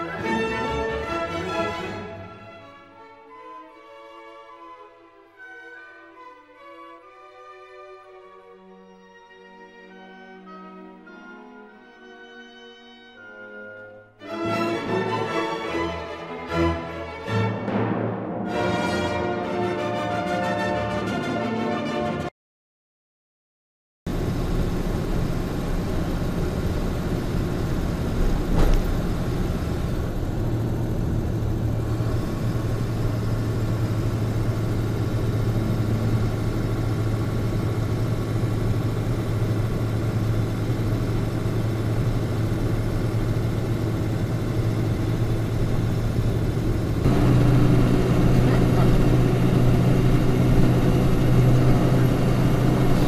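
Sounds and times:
truck engine and tyre drone: 24.1s - 53.0s
brief thump: 28.5s - 29.0s.

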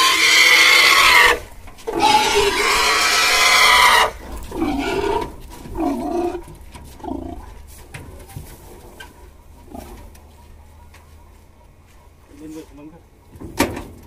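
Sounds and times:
pig grunting: 0.0s - 7.7s, 9.6s - 10.2s.

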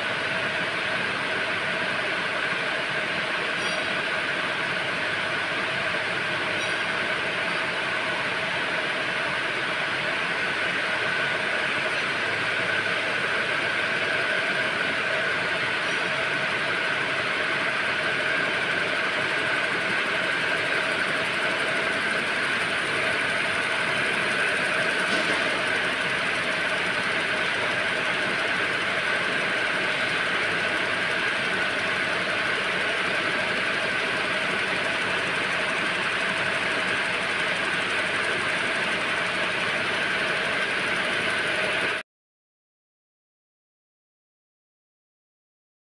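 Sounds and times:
loom machines running: 0.0s - 42.0s.

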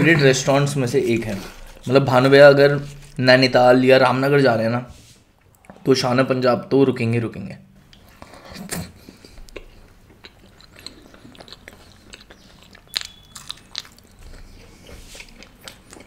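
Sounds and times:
crisp crunches: 0.9s - 3.6s
man chewing food: 7.9s - 16.0s.

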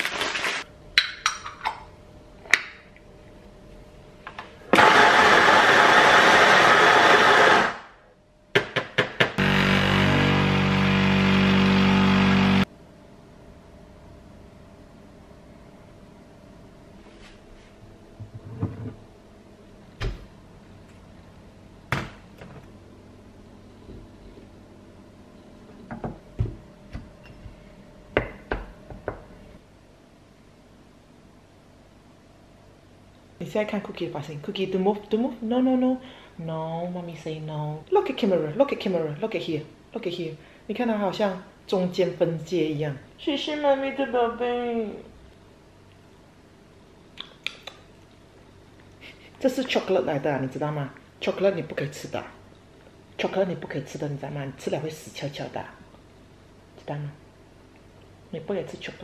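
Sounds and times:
coffee grinder grinding beans: 0.0s - 0.6s, 4.8s - 7.9s.

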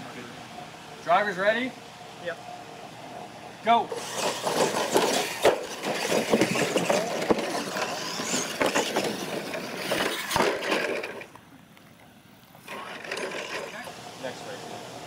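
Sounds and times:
toy truck motors whirring: 3.9s - 11.4s, 12.6s - 14.6s
trucks knocking and clattering: 4.0s - 11.4s.

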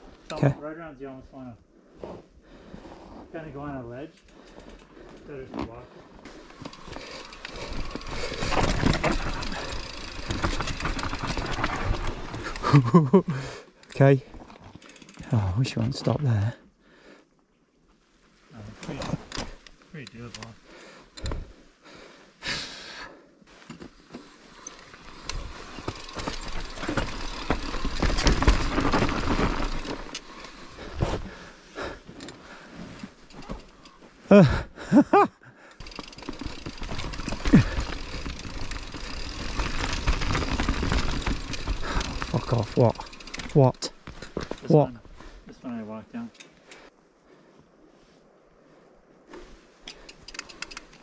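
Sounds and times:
bike tyres on dirt trail: 0.0s - 17.2s, 17.8s - 35.0s, 35.7s - 51.0s
bike rattling and clicking: 4.1s - 5.4s, 6.3s - 13.2s, 13.9s - 15.5s, 24.5s - 31.3s, 32.2s - 34.0s, 35.8s - 44.8s, 49.9s - 51.0s.

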